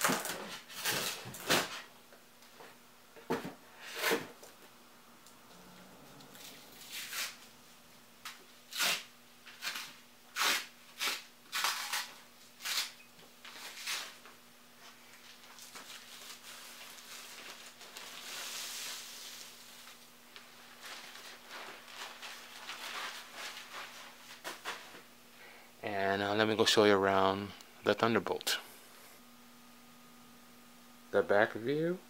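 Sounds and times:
protective sheet rustling: 15.9 - 24.9.

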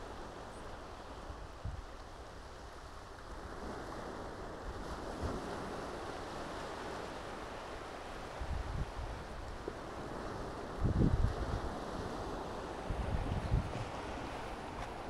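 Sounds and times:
sea waves washing on shore: 0.0 - 15.0
wind buffeting microphone: 8.3 - 15.0.

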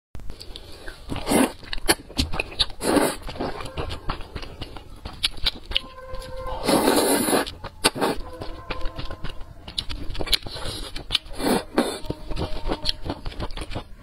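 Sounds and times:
lip smacks: 0.3 - 5.9, 6.6 - 12.1
wet chewing: 0.3 - 14.0
noodles being slurped: 0.4 - 5.7, 6.5 - 8.2, 9.7 - 14.0.

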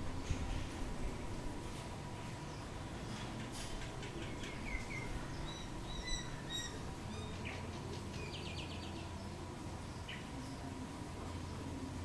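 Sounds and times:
low background noise: 0.0 - 12.0
myna bird calling: 3.4 - 9.3.

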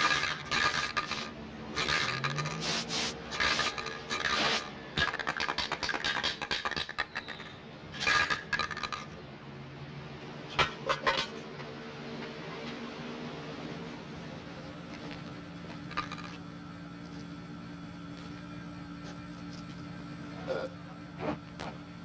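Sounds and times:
spray-paint can hissing bursts: 0.6 - 4.7.

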